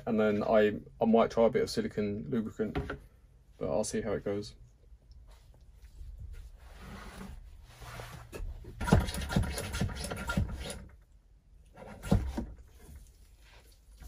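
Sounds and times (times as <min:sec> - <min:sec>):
soft scraping: 0:05.2 - 0:08.6
hand pump strokes: 0:08.8 - 0:10.8.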